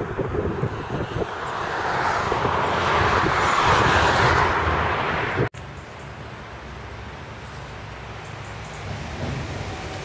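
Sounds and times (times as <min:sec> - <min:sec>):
passing vehicle rushing: 0:00.0 - 0:05.5, 0:07.9 - 0:10.0.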